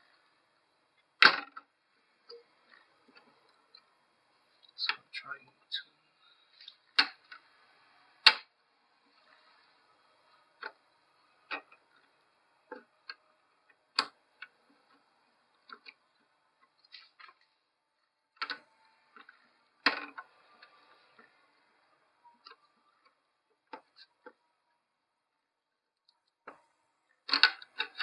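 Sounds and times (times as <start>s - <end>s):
clicks and taps of metal parts: 27.3s - 28.0s.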